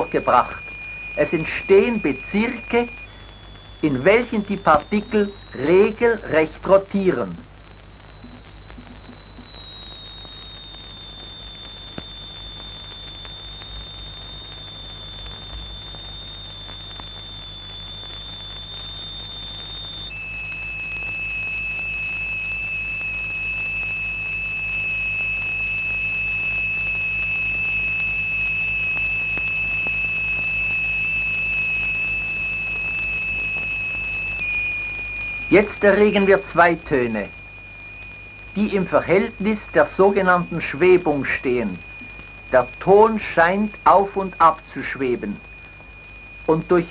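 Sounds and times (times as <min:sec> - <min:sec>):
low hum: 0:00.0 - 0:17.5
high-pitched electronic tone: 0:03.8 - 0:12.1, 0:32.2 - 0:46.9.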